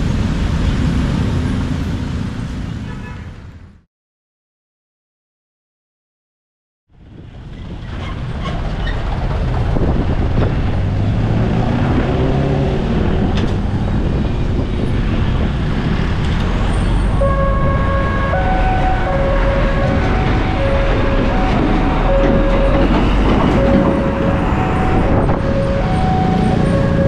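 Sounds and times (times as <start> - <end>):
vehicle engines running: 7.0 - 27.0
tyres rolling over rails: 7.5 - 14.0, 18.5 - 27.0
level crossing warning tones: 17.2 - 27.0.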